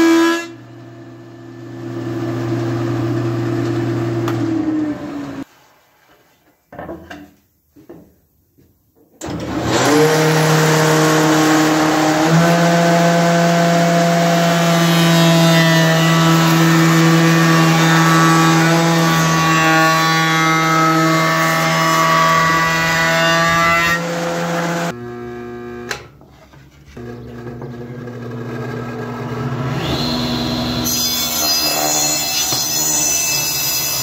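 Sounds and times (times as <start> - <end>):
table saw running: 9.2 - 26.1, 27.0 - 34.0
spindle moulder cutting wood: 9.2 - 26.2.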